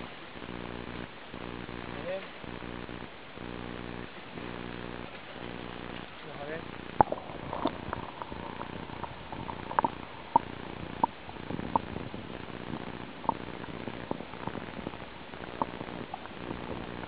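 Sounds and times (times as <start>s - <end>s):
dull underwater rumble: 0.0s - 17.0s
faint low hum: 0.0s - 17.0s
sharp clicks and pops: 6.7s - 17.0s.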